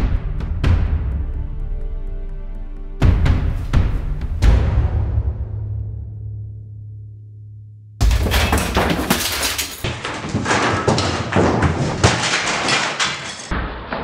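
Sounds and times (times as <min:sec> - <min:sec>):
boxes crashing from a shelf: 0:08.0 - 0:14.0
objects clattering and thudding: 0:08.0 - 0:14.0.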